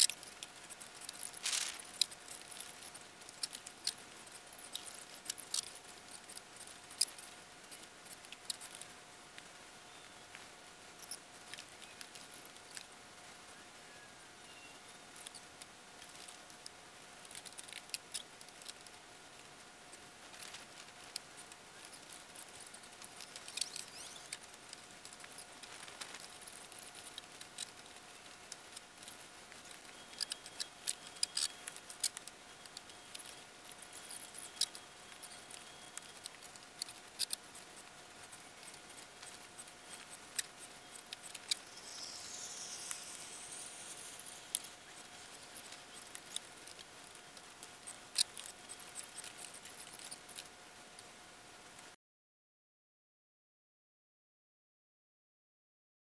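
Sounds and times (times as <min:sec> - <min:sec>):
small clicks and ticks: 0:00.0 - 0:13.4, 0:14.7 - 0:52.0
faint whine: 0:00.0 - 0:50.8
warbling chirp: 0:23.2 - 0:24.4, 0:39.9 - 0:46.0.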